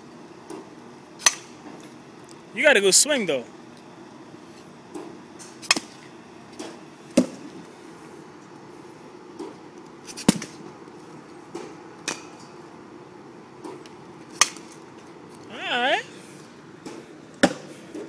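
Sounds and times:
baseball bat cracks: 1.2s - 1.6s, 14.3s - 14.8s, 16.9s - 17.7s.

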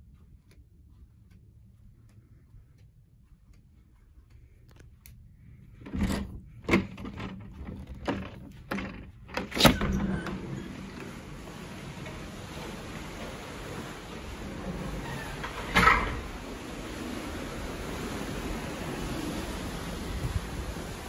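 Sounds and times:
sliding door clunks and knocks: 5.8s - 21.0s
wind and sea rushing: 9.7s - 21.0s.

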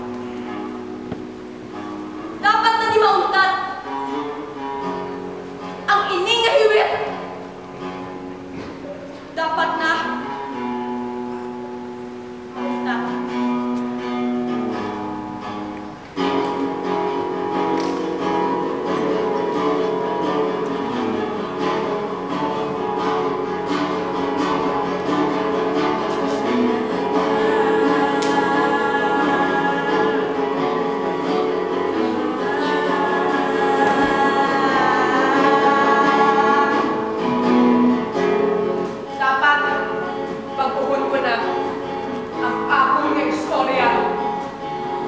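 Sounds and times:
acoustic guitar: 0.0s - 45.0s
voices singing together: 26.2s - 38.1s.

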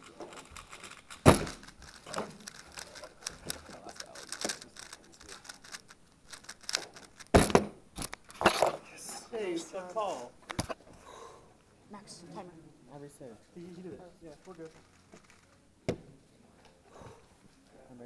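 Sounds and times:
puzzle cube clicking turns: 0.0s - 8.6s
thump: 1.2s - 1.7s, 7.3s - 7.8s, 15.9s - 16.2s.

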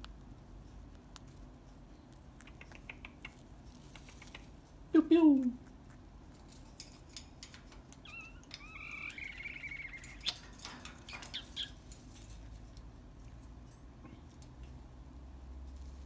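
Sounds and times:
high bird chirp: 8.0s - 11.9s
parrot calling softly: 8.0s - 11.9s.

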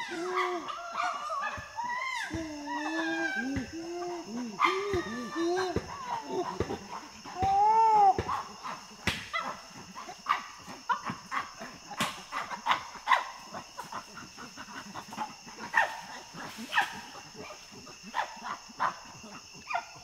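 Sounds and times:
chimpanzee barks: 0.0s - 20.0s.

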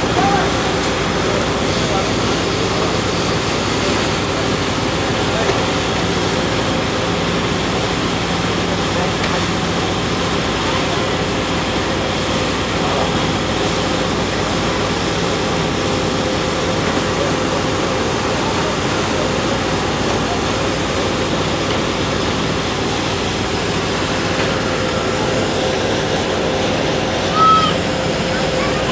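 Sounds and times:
boat motor humming: 0.0s - 28.9s.

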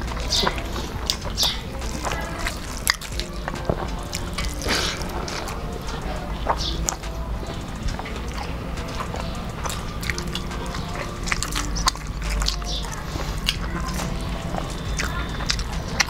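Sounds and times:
chewing and lip-smacking: 0.0s - 16.0s.

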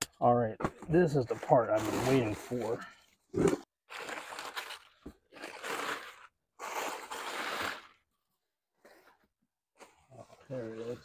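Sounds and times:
crumpled newspaper crunching: 3.9s - 7.9s.

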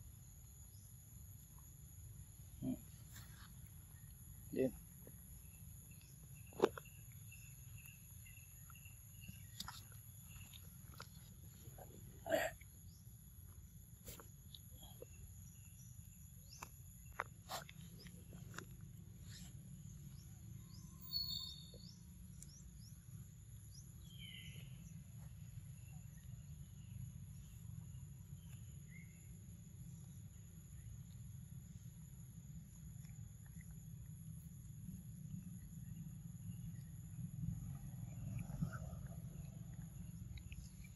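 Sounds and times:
low steady rumble: 21.6s - 40.9s.

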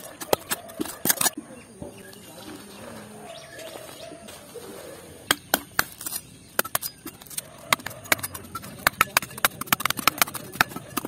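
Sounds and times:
metal blade striking dry soil: 5.3s - 11.0s.

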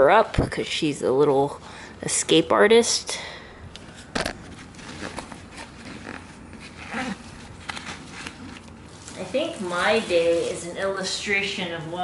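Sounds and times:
rustles and scratches in carrier: 4.2s - 11.0s.

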